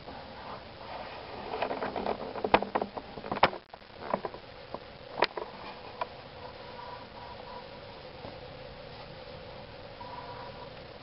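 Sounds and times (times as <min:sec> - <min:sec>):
handling rustling and clatter: 0:00.5 - 0:06.2.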